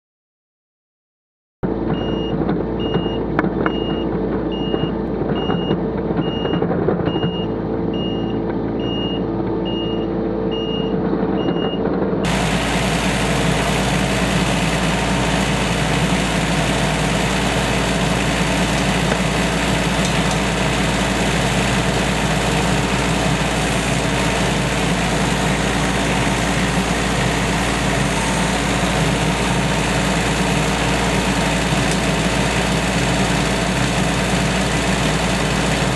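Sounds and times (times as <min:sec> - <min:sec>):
excavator diesel engine running: 0:01.6 - 0:35.9
beeping alarm: 0:01.9 - 0:11.8.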